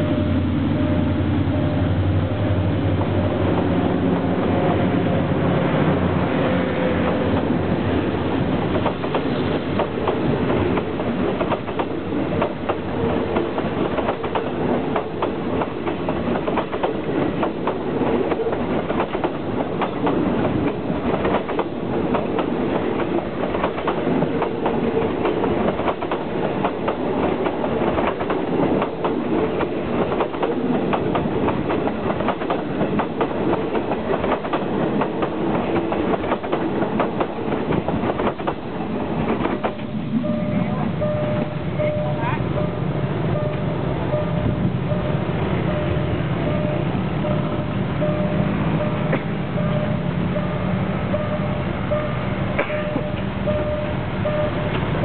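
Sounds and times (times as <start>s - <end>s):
diesel locomotive hum: 0.0s - 55.0s
train wheels clacking over joints: 8.7s - 39.9s.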